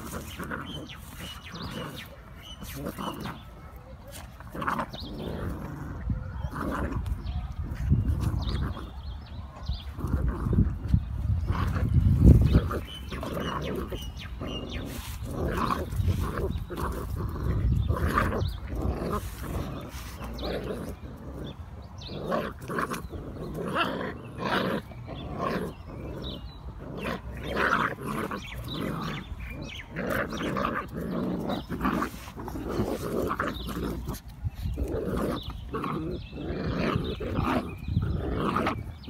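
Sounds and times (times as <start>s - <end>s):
puppies play-growling: 0.0s - 9.0s, 9.8s - 39.0s.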